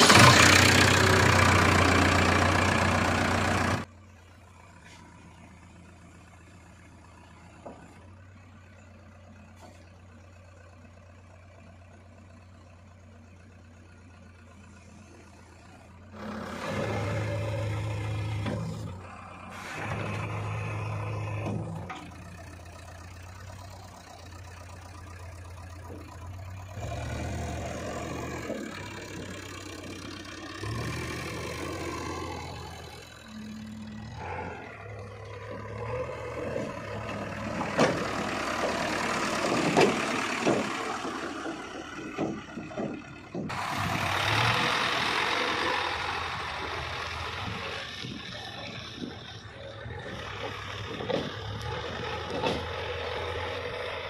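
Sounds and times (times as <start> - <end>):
diesel engine revving: 0.0 - 10.7, 12.8 - 54.0
sharp knocks and clatter: 37.0 - 43.6, 50.0 - 53.0.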